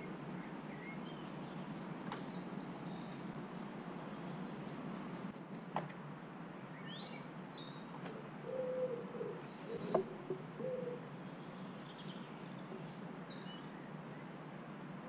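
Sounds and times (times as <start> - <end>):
faint birdsong chirps: 0.0 - 5.3, 6.6 - 15.0
low hooting bird calls: 6.8 - 14.4.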